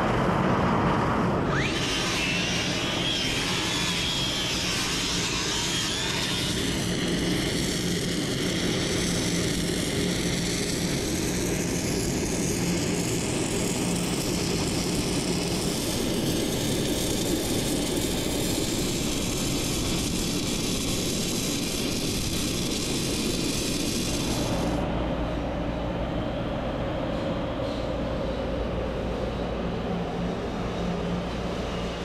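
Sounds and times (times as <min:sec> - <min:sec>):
welding arc crackling: 0:02.5 - 0:24.8
steady low hum: 0:04.4 - 0:32.0.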